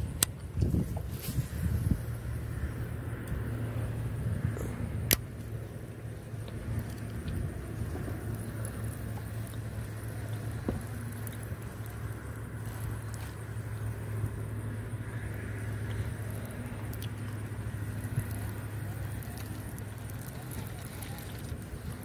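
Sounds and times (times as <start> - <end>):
wind buffeting microphone: 0.0 - 5.2.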